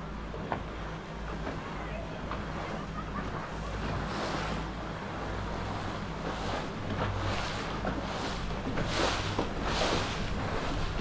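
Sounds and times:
outboard motors humming: 0.0 - 11.0
water splashing off hull: 0.0 - 11.0.

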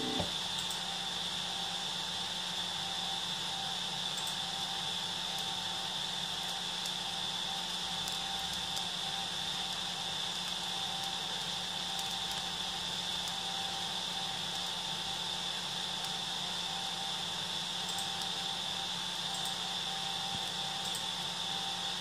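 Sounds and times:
high whine: 0.0 - 0.4
cooling fan whirring: 0.0 - 22.0.

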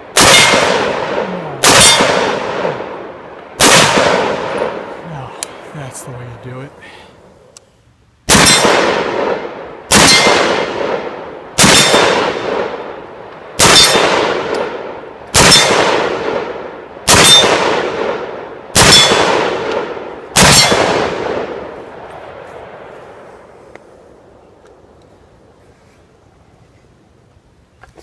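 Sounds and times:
gunshots echoing: 0.0 - 6.0, 8.3 - 23.3.

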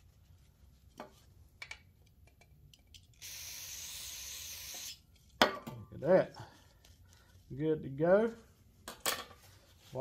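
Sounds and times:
aerosol spray hiss: 3.2 - 5.0.

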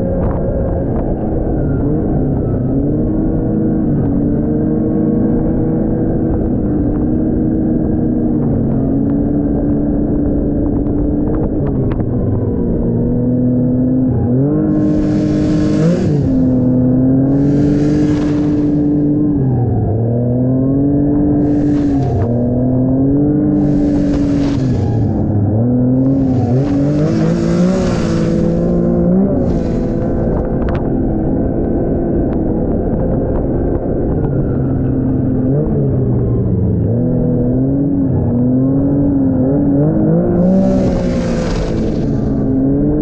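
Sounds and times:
snowmobile engine running: 0.0 - 43.0
snow spray hissing: 14.7 - 16.7, 17.3 - 19.0, 21.4 - 22.4, 23.5 - 25.2, 26.0 - 30.3, 40.4 - 42.4.

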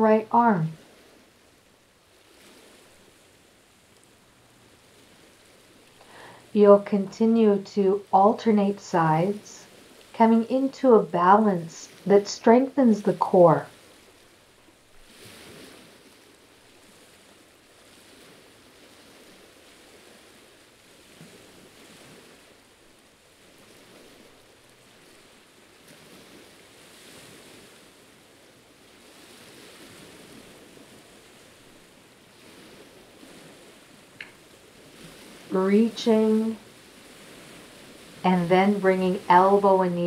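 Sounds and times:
small waves lapping on rocks: 0.8 - 6.5, 13.7 - 35.5, 36.6 - 38.3.

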